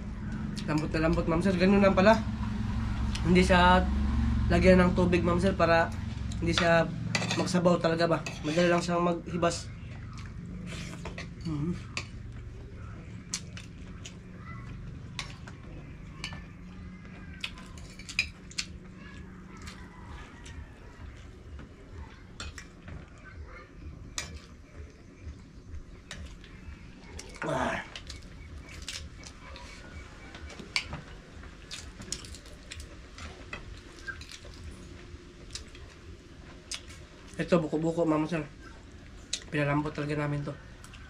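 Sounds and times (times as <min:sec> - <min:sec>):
steady low hum: 0:00.0 - 0:41.0
cutlery clinking on plates: 0:07.2 - 0:07.6
chewing: 0:09.9 - 0:23.5, 0:25.2 - 0:37.4.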